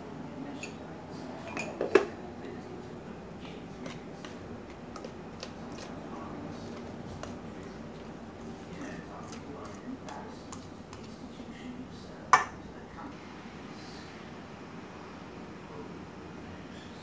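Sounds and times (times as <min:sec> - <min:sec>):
whisk clattering: 0:03.7 - 0:11.2
whisk scraping a metal bowl: 0:03.7 - 0:11.3.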